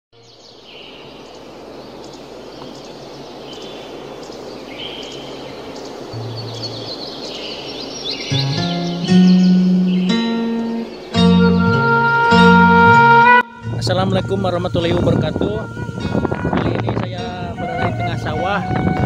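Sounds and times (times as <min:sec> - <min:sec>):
birds chirping: 0:00.2 - 0:19.0
wind noise: 0:05.2 - 0:19.0
plucked-string music: 0:08.3 - 0:19.0.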